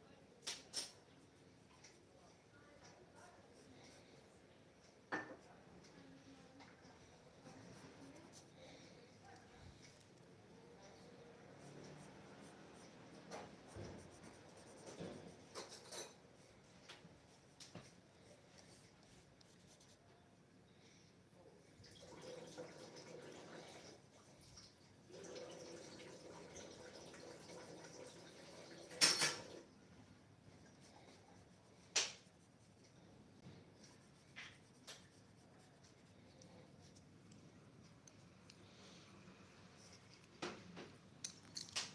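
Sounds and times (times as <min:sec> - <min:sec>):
pencil scratching on paper: 0:07.4 - 0:08.6, 0:10.9 - 0:16.1, 0:30.8 - 0:37.1.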